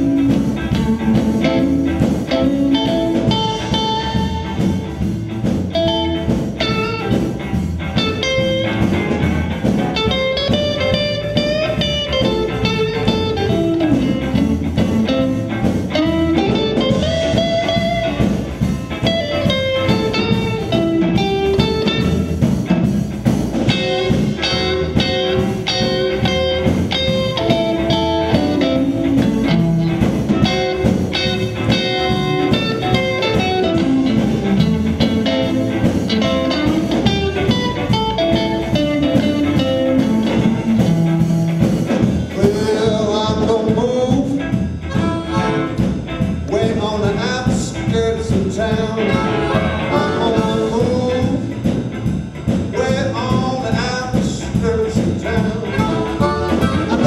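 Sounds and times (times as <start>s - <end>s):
blues harmonica bending notes: 0.0s - 42.2s, 44.7s - 46.5s, 48.8s - 51.6s, 55.4s - 57.0s
drums: 0.0s - 57.0s
electric guitar lead lines: 0.0s - 57.0s.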